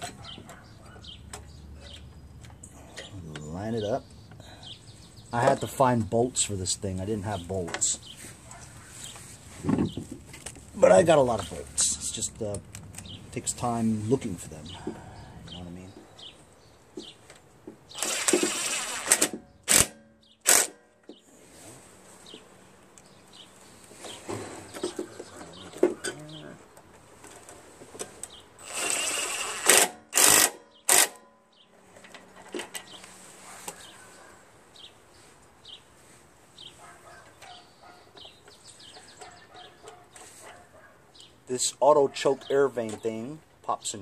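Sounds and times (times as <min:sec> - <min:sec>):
cordless driver spinning bolts: 0:18.0 - 0:19.9, 0:28.6 - 0:31.2.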